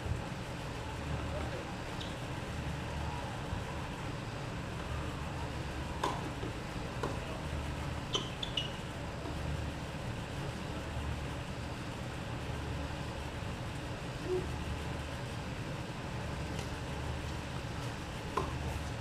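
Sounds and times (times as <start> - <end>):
low outdoor rumble: 0.0 - 19.0
tennis balls struck with rackets: 6.0 - 7.2
high squeaks: 8.1 - 8.9.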